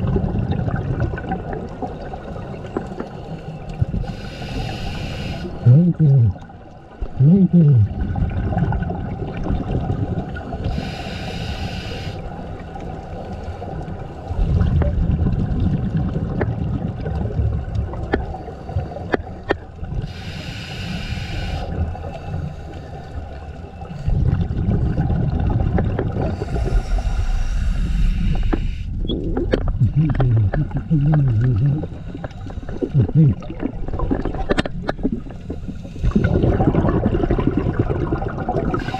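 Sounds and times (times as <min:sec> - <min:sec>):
exhaled air bubbling: 0:00.0 - 0:22.6, 0:23.2 - 0:38.9
regulator hissing inhalations: 0:04.0 - 0:05.6, 0:10.7 - 0:12.2, 0:20.0 - 0:23.1, 0:26.4 - 0:29.0.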